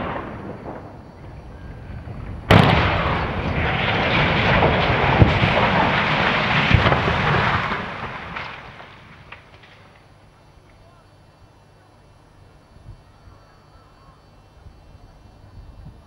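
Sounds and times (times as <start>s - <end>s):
explosive blast: 0.0s - 10.0s
concrete crashing: 2.6s - 9.6s.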